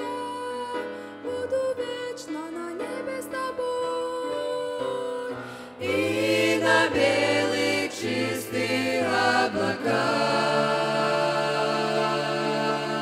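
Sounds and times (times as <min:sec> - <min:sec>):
group singing in harmony: 0:05.6 - 0:13.0.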